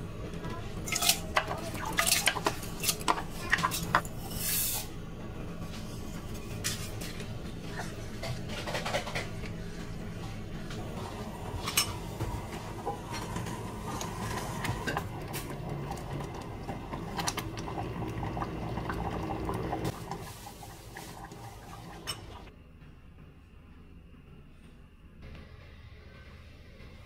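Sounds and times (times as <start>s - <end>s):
spoon scraping pot: 0.9s - 4.8s
porridge bubbling: 10.9s - 22.5s.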